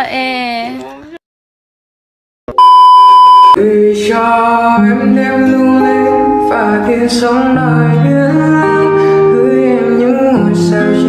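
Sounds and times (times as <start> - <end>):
loud electronic beep: 2.5 - 3.6
person singing: 3.6 - 11.0.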